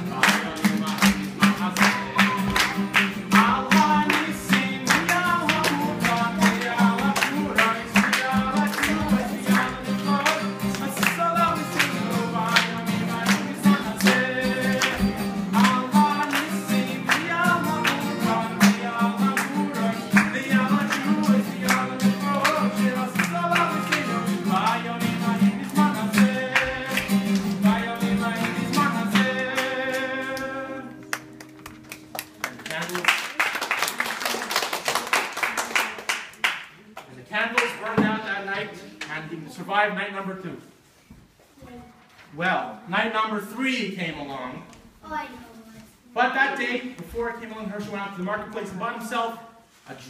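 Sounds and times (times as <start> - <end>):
man singing: 0.0 - 31.1, 37.7 - 39.4
strummed acoustic guitar: 0.0 - 32.2
audience clapping along: 0.0 - 38.0.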